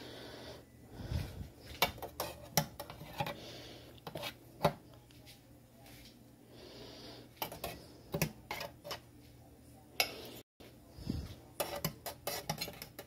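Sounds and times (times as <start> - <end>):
kitchen utensils and dishes clinking: 11.2 - 13.0.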